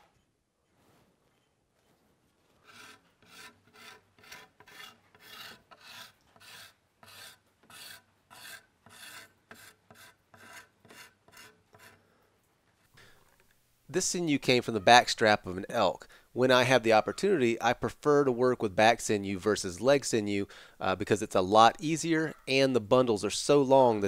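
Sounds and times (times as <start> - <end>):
hacksaw rasping on wood: 2.6 - 12.0.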